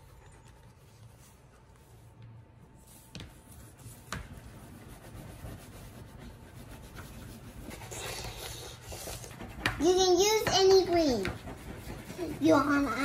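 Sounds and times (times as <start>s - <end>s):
crayons scratching on board: 3.4s - 13.0s.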